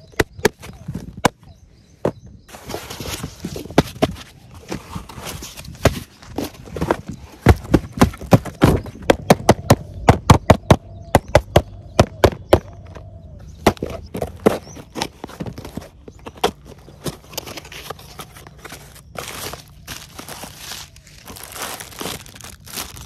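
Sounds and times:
cardboard boxes knocking and tapping: 2.8s - 13.0s.

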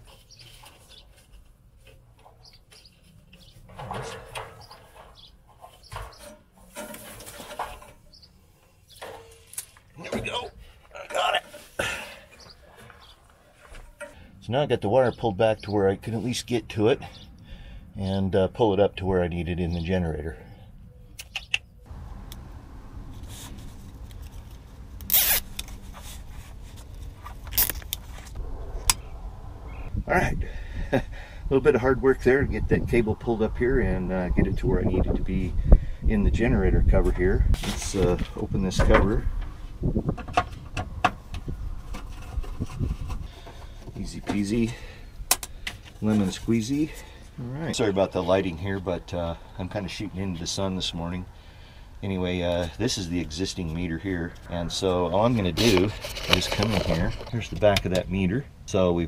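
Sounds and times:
wire rustling and knocking: 0.0s - 8.2s
wire scraping and rustling: 0.0s - 14.2s, 23.0s - 29.0s, 40.4s - 45.0s, 55.2s - 57.8s
low rumble: 28.3s - 35.3s.

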